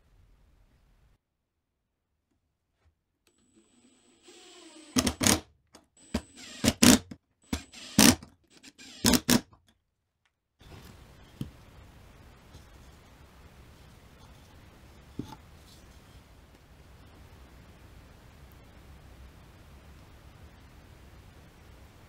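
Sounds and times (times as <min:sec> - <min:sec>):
power driver driving screws: 0:04.2 - 0:05.4, 0:06.0 - 0:09.5.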